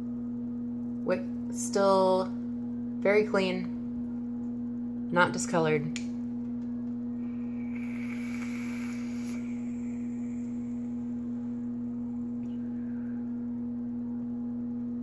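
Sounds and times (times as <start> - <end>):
low electrical hum: 0.0 - 15.0
vape atomizer hissing: 7.3 - 12.2.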